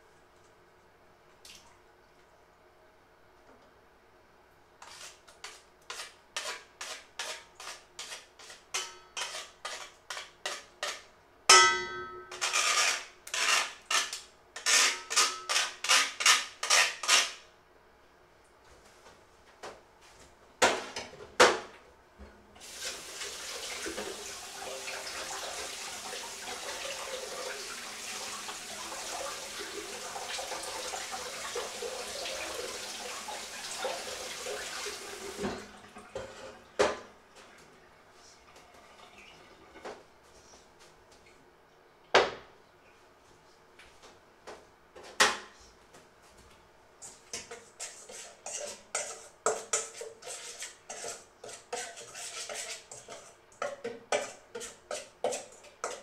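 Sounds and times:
food scraping on metal grater: 4.8s - 11.1s, 12.4s - 17.4s, 47.4s - 53.4s, 54.1s - 56.0s
ringing metal knock: 11.5s - 12.3s
running tap water: 22.6s - 36.0s.

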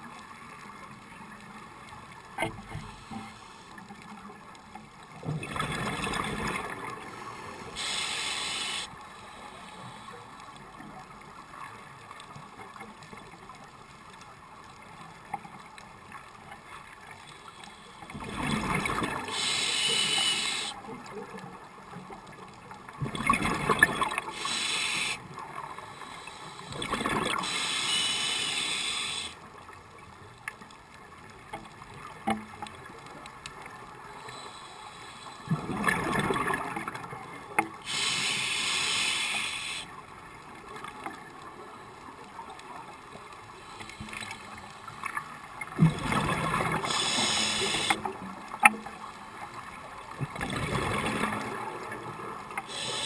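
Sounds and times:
rush of bubbles: 5.4s - 7.1s, 18.2s - 20.8s, 23.0s - 25.2s, 26.7s - 29.4s, 35.5s - 37.0s, 45.7s - 48.0s, 50.3s - 53.0s
diver breathing through regulator: 7.2s - 10.2s, 19.2s - 20.8s, 24.2s - 29.4s, 37.8s - 39.9s, 46.8s - 48.1s, 52.6s - 53.0s
regulator hiss: 7.2s - 10.2s, 19.2s - 20.8s, 24.2s - 29.4s, 34.2s - 35.5s, 37.8s - 40.0s, 46.8s - 48.1s, 52.6s - 53.0s.

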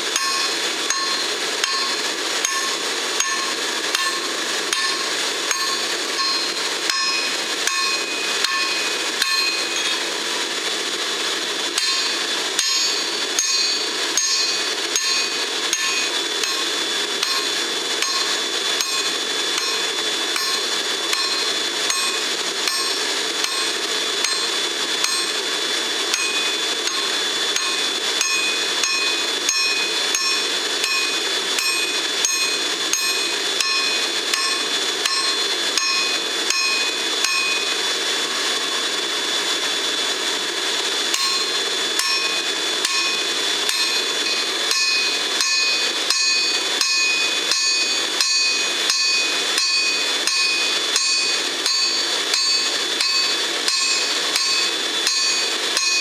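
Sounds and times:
anvil ringing: 0.2s - 10.0s, 11.8s - 19.8s, 20.4s - 23.6s, 26.1s - 37.7s, 41.2s - 56.0s
hammer striking blade on anvil: 0.2s - 10.0s, 11.8s - 19.8s, 20.4s - 25.4s, 26.1s - 37.7s, 41.1s - 56.0s.

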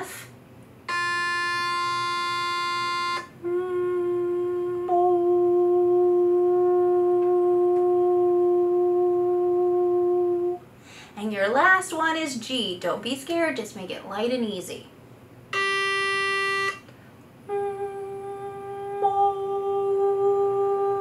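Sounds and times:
electronic reference tone: 0.9s - 3.3s, 15.6s - 16.8s
woman singing sustained note: 0.9s - 10.6s, 17.5s - 21.0s.

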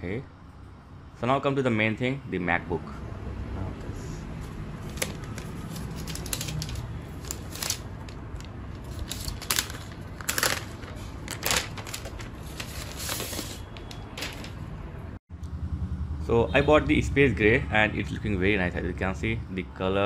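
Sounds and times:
plastic wrap crinkling: 5.0s - 14.6s.

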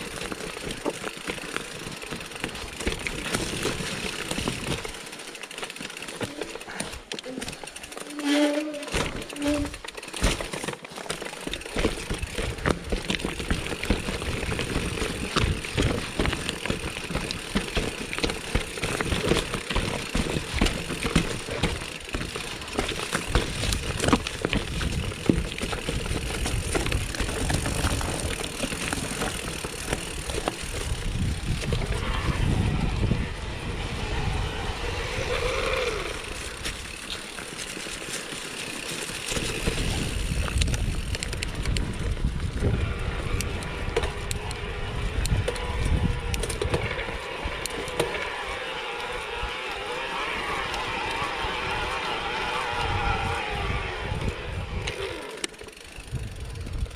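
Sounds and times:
bike clicks and rattles: 0.0s - 56.9s
bike tyres over dirt and stones: 0.0s - 56.9s
wind rumble on microphone: 22.8s - 36.9s, 39.6s - 48.6s, 49.2s - 55.2s, 56.0s - 56.9s.

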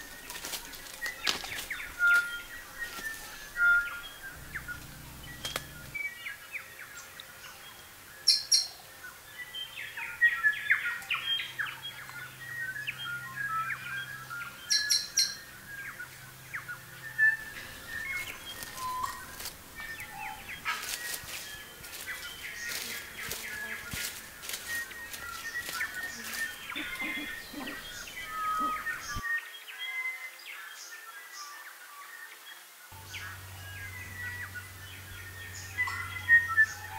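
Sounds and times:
rustling: 0.0s - 6.0s, 17.5s - 29.2s
birds chirping and calling: 0.0s - 29.7s, 33.0s - 36.9s
sharp clicks: 4.8s - 6.0s.

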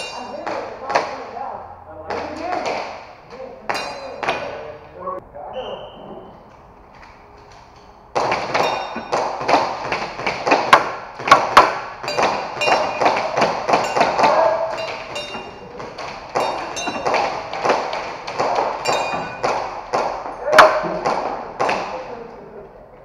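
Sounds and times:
metal plate targets clinking: 0.0s - 0.8s, 3.7s - 4.8s, 7.8s - 21.0s.

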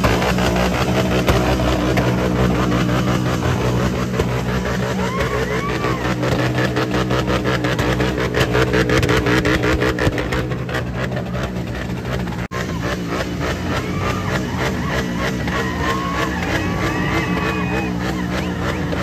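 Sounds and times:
noisy crowd: 0.0s - 10.1s, 10.8s - 19.0s
motorcycle engine revving: 0.0s - 19.0s.

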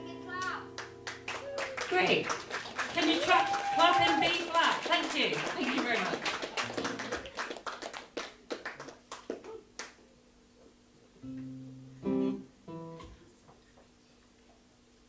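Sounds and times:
acoustic guitar notes plucked: 0.0s - 1.3s, 11.2s - 13.2s
applause: 0.3s - 10.0s.

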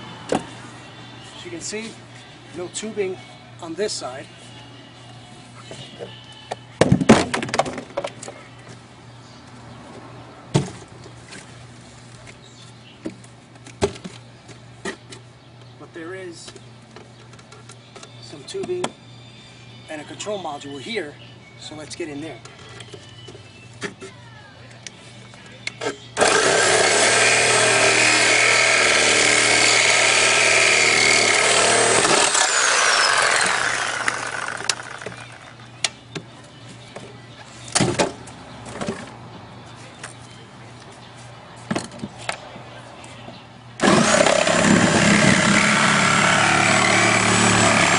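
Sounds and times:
power tool cutting metal: 26.2s - 35.4s, 43.8s - 47.9s
motor winding down whine: 26.2s - 35.5s.

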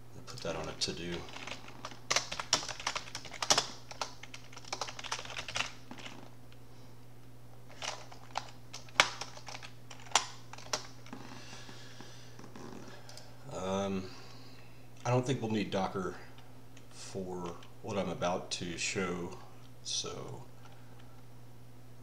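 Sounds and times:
steady low hum: 0.0s - 22.0s
keyboard typing: 0.3s - 6.3s, 7.7s - 10.9s.

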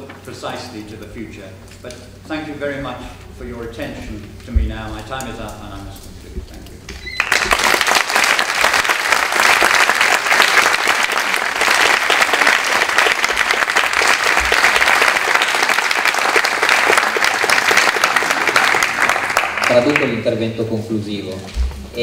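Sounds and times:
audience applauding: 7.0s - 20.5s.

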